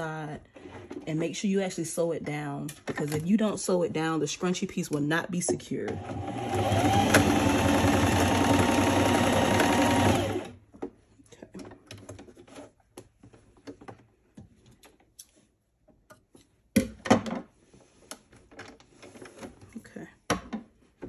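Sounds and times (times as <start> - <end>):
sewing machine stitching: 5.9 - 10.6.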